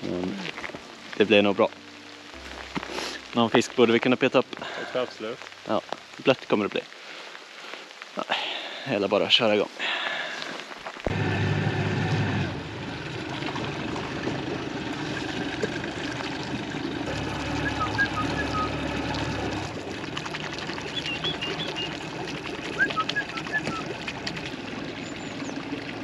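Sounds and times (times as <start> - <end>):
water trickling and splashing: 0.0 - 26.0
boat engine idling: 11.1 - 26.0.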